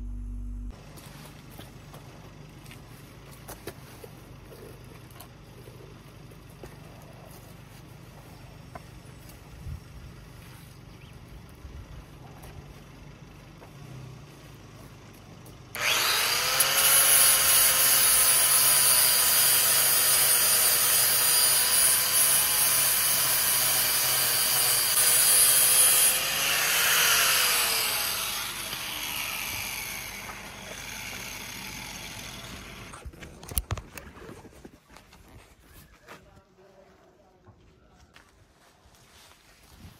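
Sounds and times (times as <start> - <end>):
electric grinder grinding fibreglass: 15.7 - 33.0.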